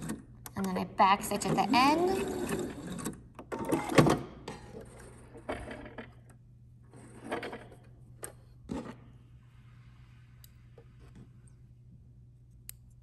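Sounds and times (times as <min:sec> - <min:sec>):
faint low hum: 0:04.4 - 0:13.0.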